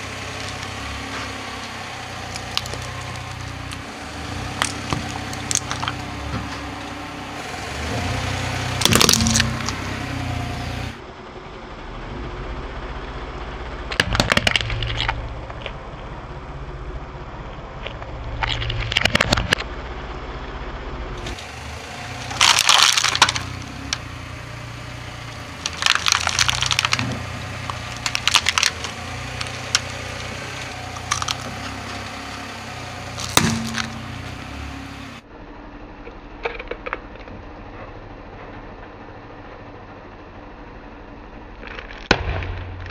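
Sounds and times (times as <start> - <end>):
car engine idling: 0.0 - 42.9
tyre crunching plastic: 8.8 - 9.8, 21.2 - 24.1, 25.2 - 32.2.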